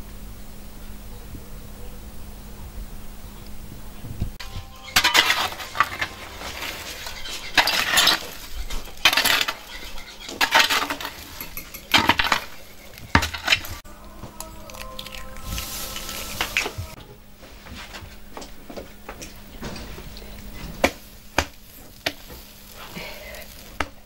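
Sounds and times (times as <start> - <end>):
metal shovel scraping embers: 4.4 - 13.9, 14.8 - 17.0, 19.5 - 24.0.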